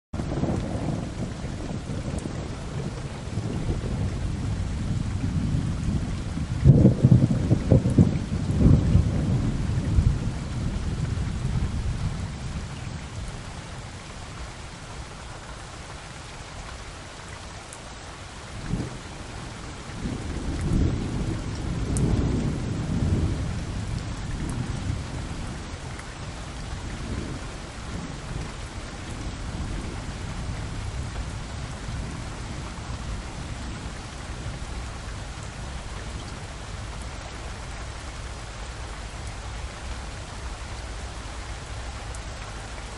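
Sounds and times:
wind buffeting microphone: 0:00.2 - 0:14.7.

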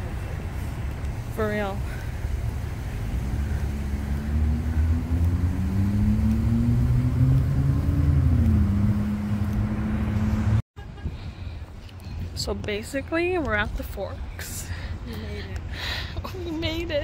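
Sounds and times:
vehicle engine passing by: 0:02.5 - 0:10.6.

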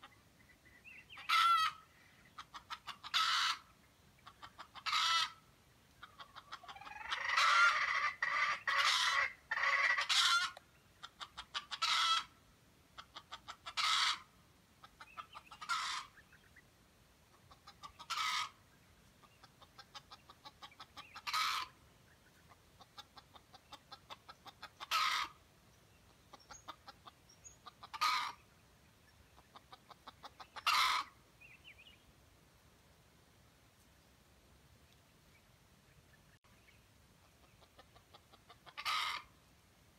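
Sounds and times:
rooster clucking and calling: 0:00.9 - 0:12.4, 0:13.0 - 0:16.4, 0:17.3 - 0:18.6, 0:19.2 - 0:25.4, 0:26.0 - 0:28.5, 0:29.3 - 0:31.5, 0:37.2 - 0:39.4.

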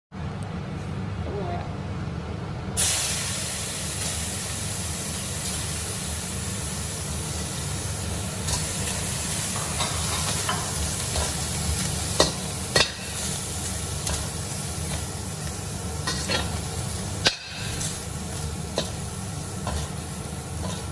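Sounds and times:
fish sizzling in hot oil: 0:02.8 - 0:20.9
metal spatula scraping wok: 0:20.6 - 0:20.9.

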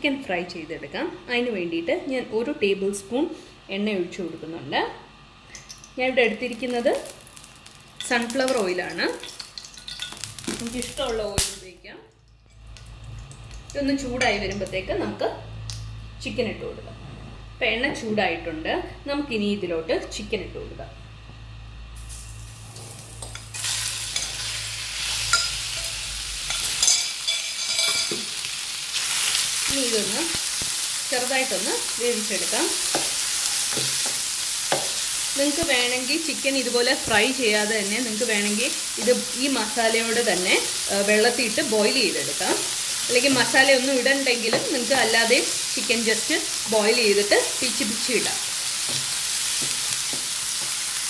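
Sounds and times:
meat sizzling in a frying pan: 0:06.5 - 0:11.7, 0:22.0 - 0:51.0.

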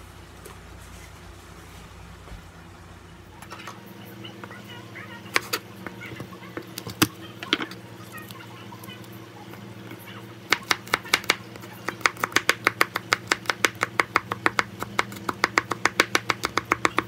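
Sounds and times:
steady low hum: 0:00.0 - 0:17.0
knife chopping on wooden board: 0:10.5 - 0:17.0.

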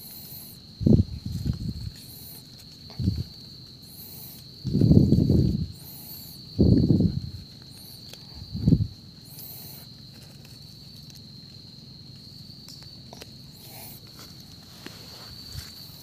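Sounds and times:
high insect trill: 0:00.0 - 0:16.0
clicks and rustles in leaf litter: 0:07.2 - 0:16.0.

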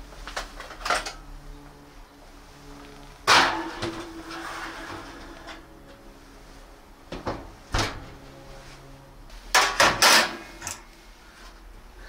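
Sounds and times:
loud metal clanks: 0:03.3 - 0:05.1.

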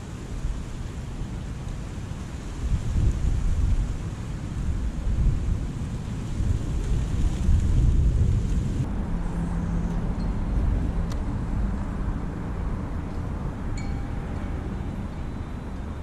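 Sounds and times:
wind buffeting microphone: 0:00.0 - 0:16.0
low steady hum: 0:04.6 - 0:16.0.

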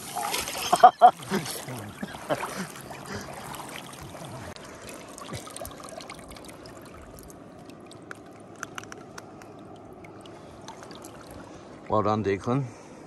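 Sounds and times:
water pouring: 0:00.0 - 0:11.8
water dripping off a fish: 0:05.0 - 0:11.6.

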